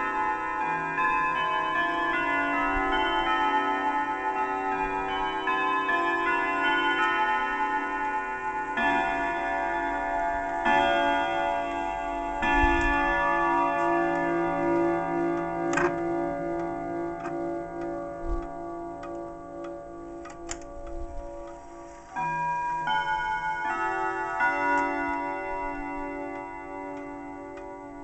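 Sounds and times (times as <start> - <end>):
wall clock chime strikes: 0.0 - 28.0
clock ticking: 10.5 - 28.0
sharp clicks: 20.2 - 21.0.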